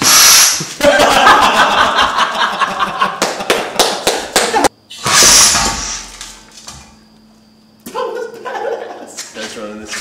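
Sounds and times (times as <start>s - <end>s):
compressed air hiss: 0.0s - 0.8s, 5.0s - 6.2s
man laughing hard: 0.8s - 3.8s, 8.0s - 9.2s.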